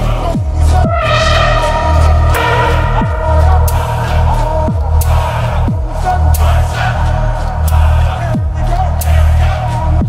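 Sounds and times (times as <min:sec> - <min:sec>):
heavy sustained sub-bass: 0:00.0 - 0:10.0
wavering synth tones: 0:00.8 - 0:05.0
sharp percussion hits: 0:00.8 - 0:06.6.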